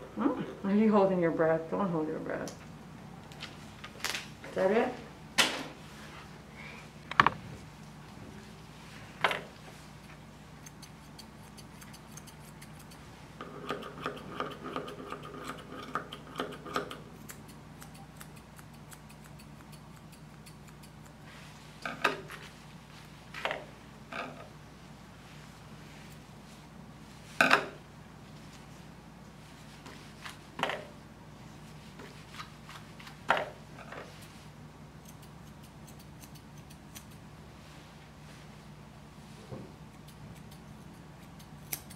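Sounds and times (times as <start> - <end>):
steady low hum: 0.0 - 41.9
scissors snipping hair: 10.0 - 21.2, 35.0 - 37.3, 39.9 - 41.9.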